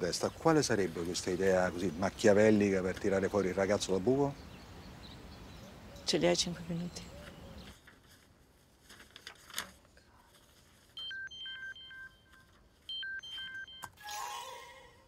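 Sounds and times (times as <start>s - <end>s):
electronic call ringing beeps: 10.9s - 14.0s.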